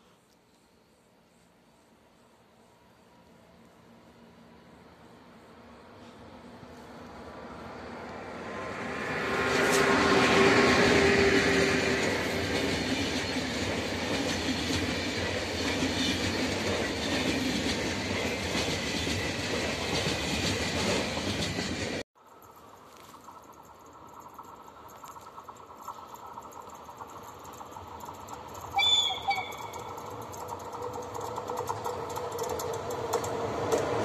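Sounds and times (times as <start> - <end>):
train passing at speed: 2.6 - 34.0
locomotive humming: 3.0 - 22.0, 22.7 - 34.0
train wheels clattering on rails: 8.8 - 34.0.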